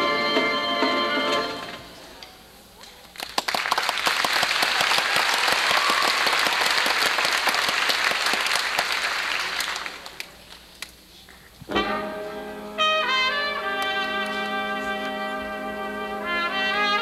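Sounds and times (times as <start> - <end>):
wind instruments holding chords: 0.0 - 2.0, 11.7 - 17.0
audience applauding: 3.1 - 10.6.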